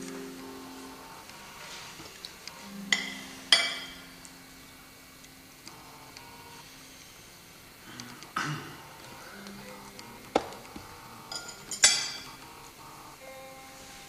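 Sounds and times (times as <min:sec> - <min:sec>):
low background music: 0:00.0 - 0:14.0
cutlery clinking on a plate: 0:11.3 - 0:12.2.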